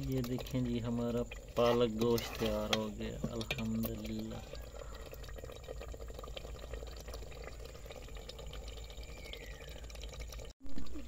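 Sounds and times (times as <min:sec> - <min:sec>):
curry bubbling and popping: 0:00.0 - 0:11.0
faint falling whistle: 0:09.0 - 0:09.8.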